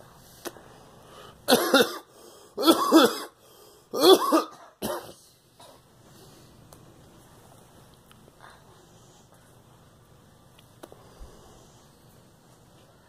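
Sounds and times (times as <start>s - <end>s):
woman coughing: 1.5s - 3.4s, 4.0s - 5.8s.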